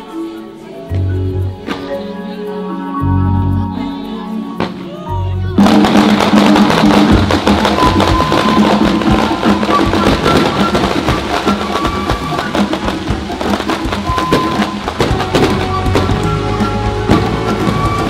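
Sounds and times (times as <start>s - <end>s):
loud music: 0.0s - 18.0s
fireworks crackling and popping: 4.6s - 18.0s.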